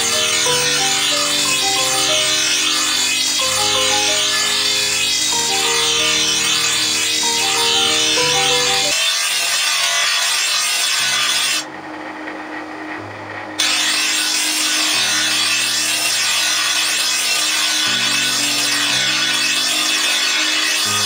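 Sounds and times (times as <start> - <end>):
grinder wheel grinding steel: 0.0 - 10.8.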